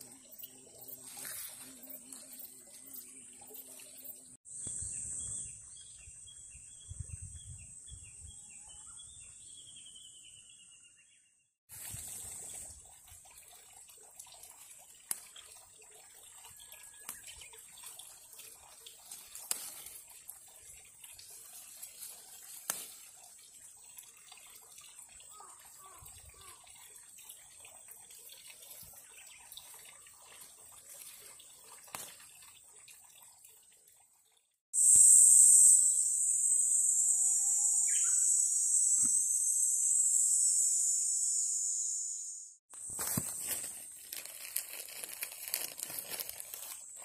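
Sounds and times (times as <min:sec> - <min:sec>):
leaves and stems rustling: 0:00.8 - 0:03.1, 0:11.7 - 0:12.7, 0:14.7 - 0:15.5, 0:17.0 - 0:23.4, 0:30.4 - 0:32.3, 0:42.8 - 0:47.0
high-pitched insect drone: 0:34.8 - 0:42.6.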